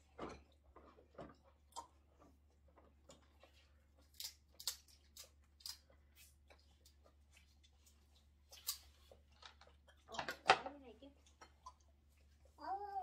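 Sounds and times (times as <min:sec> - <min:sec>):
crab shell cracking: 0:04.1 - 0:05.8.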